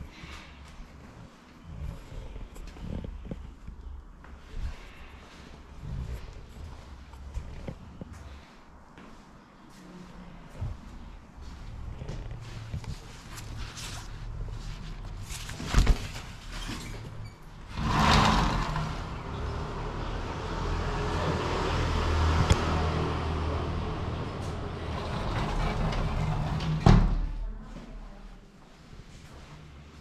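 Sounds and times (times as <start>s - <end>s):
glass window sliding: 16.7s - 21.0s, 24.0s - 27.1s
street noise rumble: 17.0s - 28.1s.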